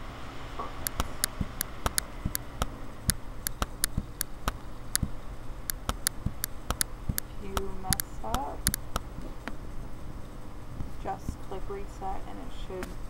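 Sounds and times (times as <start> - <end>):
low steady hum: 0.0 - 13.0
computer mouse clicking: 0.8 - 2.4, 3.4 - 5.1, 5.7 - 9.0.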